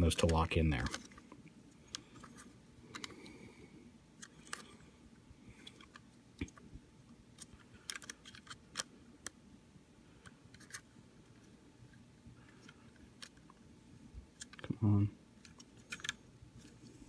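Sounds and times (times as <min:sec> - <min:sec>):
plastic toy parts clicking: 0:07.4 - 0:09.4, 0:15.4 - 0:16.2.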